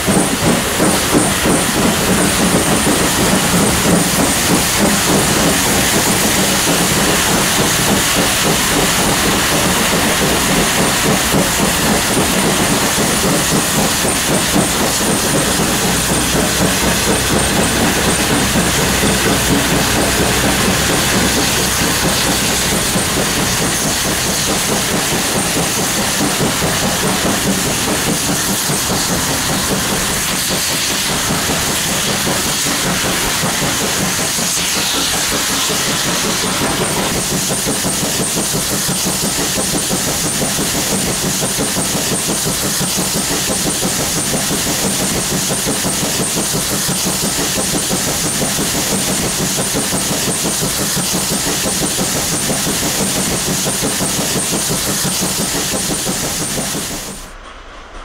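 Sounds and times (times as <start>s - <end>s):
wheels clattering over track: 0.0s - 57.4s
model steam train hiss: 0.0s - 58.0s.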